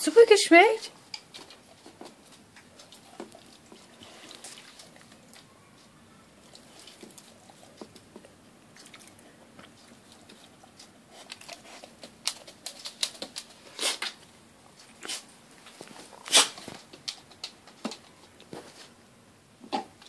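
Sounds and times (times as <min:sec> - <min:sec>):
dog licking and chewing: 0:01.1 - 0:13.8.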